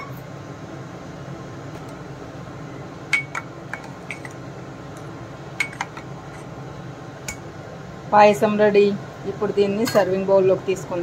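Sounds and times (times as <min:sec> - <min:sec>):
spoon clinking against metal pot: 0:03.1 - 0:04.4, 0:05.6 - 0:06.0.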